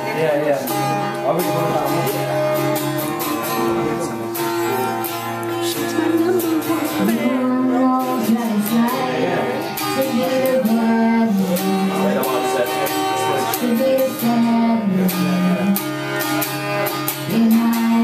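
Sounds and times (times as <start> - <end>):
strummed acoustic guitar: 0.0 - 18.0
woman singing: 5.5 - 12.2, 13.4 - 16.0, 17.1 - 18.0.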